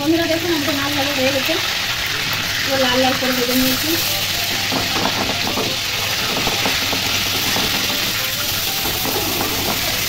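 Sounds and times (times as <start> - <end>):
fish sizzling in hot oil: 0.0 - 10.0
spatula scraping and tapping: 4.5 - 10.0.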